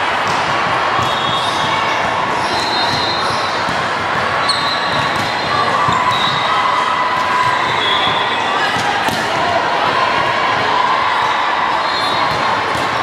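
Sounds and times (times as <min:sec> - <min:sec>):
hand slapping volleyball: 0:00.2 - 0:01.7
shoe squeaks: 0:02.4 - 0:03.6, 0:04.4 - 0:06.4.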